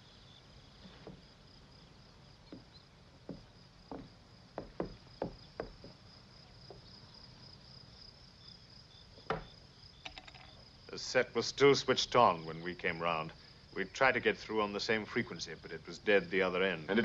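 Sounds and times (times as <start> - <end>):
night insects chirring: 0.0 - 17.0
footsteps on a wooden floor: 0.8 - 1.3, 2.5 - 6.0.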